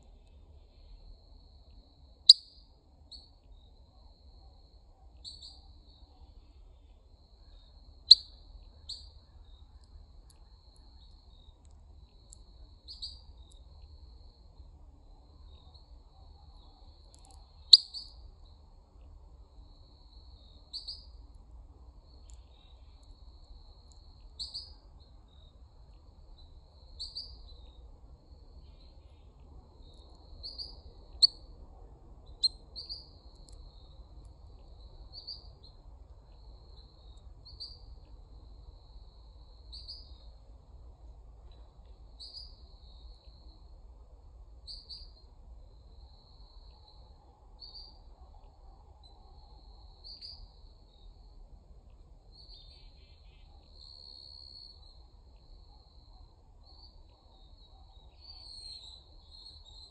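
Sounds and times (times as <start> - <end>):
faint insect-like trill: 0.0 - 59.9
bird chip calls: 8.1 - 9.9, 17.2 - 18.1.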